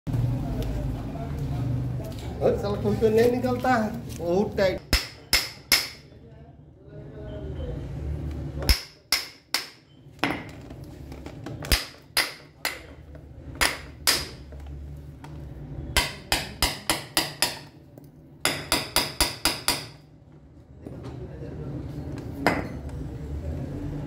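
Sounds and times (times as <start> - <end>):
hammer striking metal bolt: 18.4 - 20.0.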